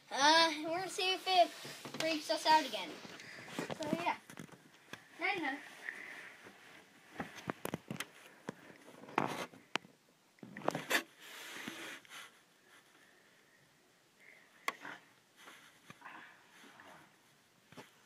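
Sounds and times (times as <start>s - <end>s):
rustling: 14.8s - 18.0s.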